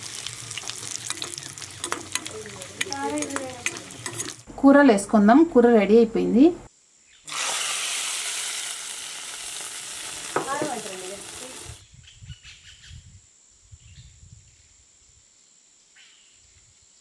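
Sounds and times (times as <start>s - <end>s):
hot oil sizzling: 0.0s - 4.5s, 7.3s - 11.8s
ladle stirring curry: 0.4s - 4.4s.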